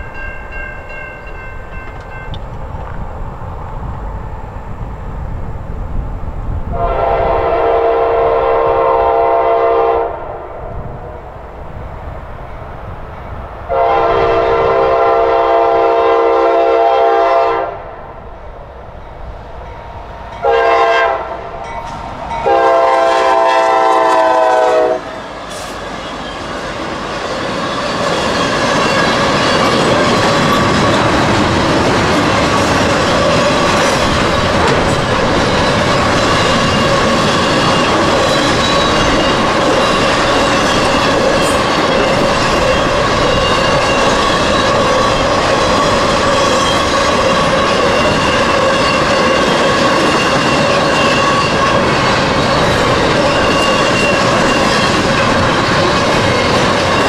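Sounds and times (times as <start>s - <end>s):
freight train rumbling and clacking: 0.0s - 57.0s
locomotive air horn blasts: 6.7s - 10.4s, 13.7s - 17.9s, 20.4s - 21.5s, 22.4s - 25.2s.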